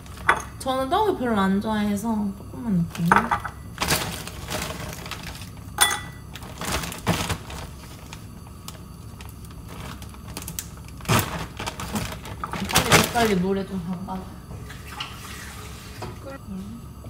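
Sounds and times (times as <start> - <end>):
frozen pieces clinking into bowl: 2.9 - 13.4
plastic bag crinkling: 3.8 - 13.6.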